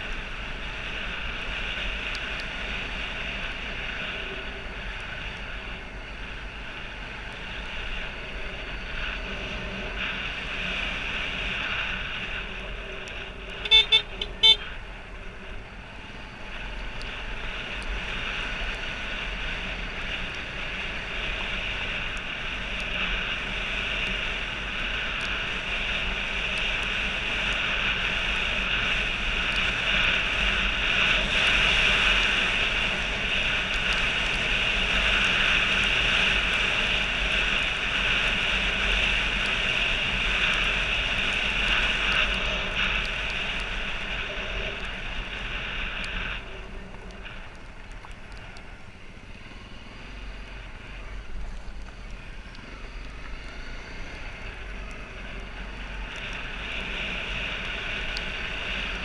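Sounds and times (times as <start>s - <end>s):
wind rushing over microphone: 0.0s - 59.0s
motorcycle engine running: 2.6s - 48.2s.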